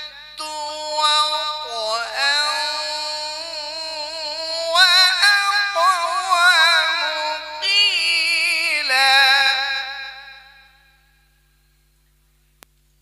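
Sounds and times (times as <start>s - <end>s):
man reciting melodically: 0.0s - 11.0s.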